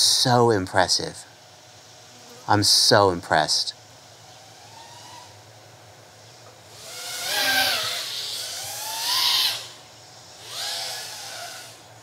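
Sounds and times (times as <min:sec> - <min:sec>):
drone motors whining: 0:04.0 - 0:12.0.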